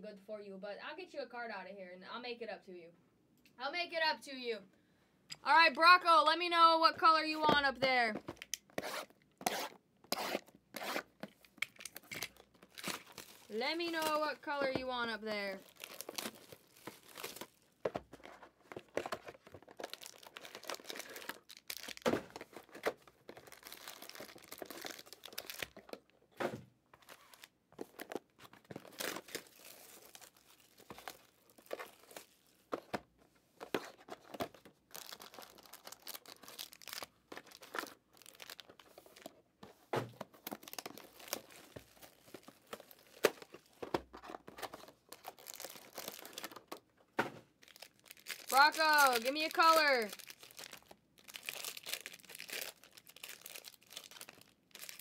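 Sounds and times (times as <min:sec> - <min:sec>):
packaging torn and crinkled: 0:11.0 - 0:14.2, 0:15.6 - 0:17.7, 0:18.8 - 0:26.2, 0:27.0 - 0:32.5, 0:34.8 - 0:39.4, 0:40.4 - 0:43.7, 0:44.4 - 0:46.9, 0:47.6 - 0:55.0.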